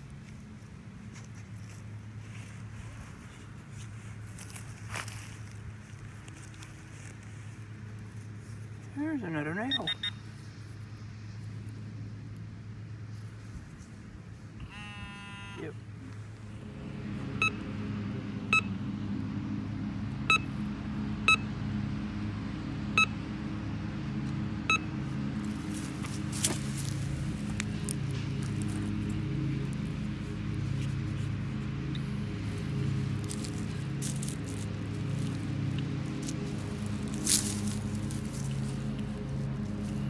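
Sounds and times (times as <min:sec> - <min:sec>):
metal detector beeps: 0:09.7 - 0:10.2, 0:14.6 - 0:15.8, 0:20.3 - 0:20.5, 0:24.7 - 0:24.9
steady low hum: 0:10.0 - 0:40.0.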